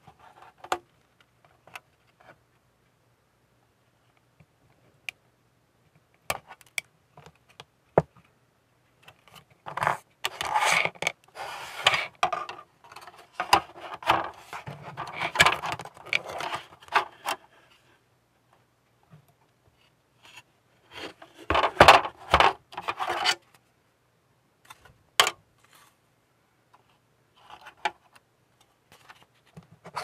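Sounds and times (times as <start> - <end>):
plastic parts clicking and tapping: 9.0 - 17.4
scraping and rubbing: 9.7 - 17.9, 20.2 - 23.4.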